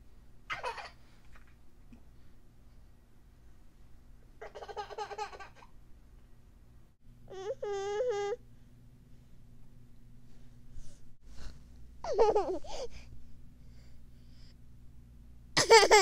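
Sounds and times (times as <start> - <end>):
toddler babbling: 7.3 - 8.4.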